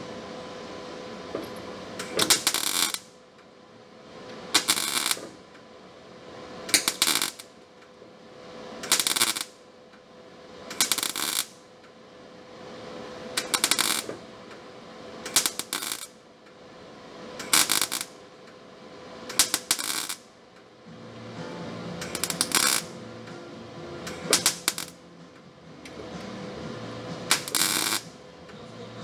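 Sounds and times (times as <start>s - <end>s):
steady hum: 0.0s - 29.0s
welding crackling bursts: 2.2s - 3.1s, 4.5s - 5.3s, 6.7s - 7.5s, 8.9s - 9.6s, 10.7s - 11.6s, 13.4s - 14.2s, 15.3s - 16.2s, 17.4s - 18.2s, 19.3s - 20.3s, 22.0s - 23.0s, 24.2s - 25.0s, 27.2s - 28.2s.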